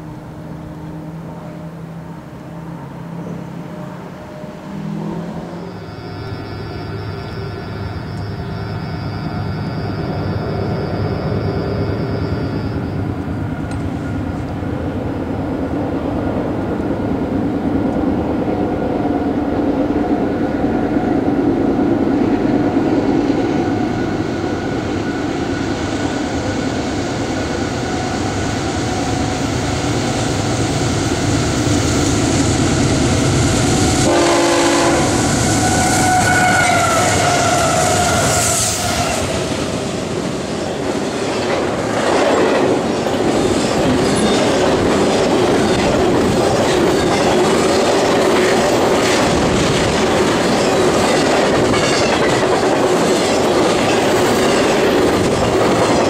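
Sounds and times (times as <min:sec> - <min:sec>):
train horn: 0:00.0 - 0:08.8, 0:33.7 - 0:39.4
diesel locomotive engines rumbling: 0:00.0 - 0:56.0
train wheel noise: 0:00.0 - 0:56.0.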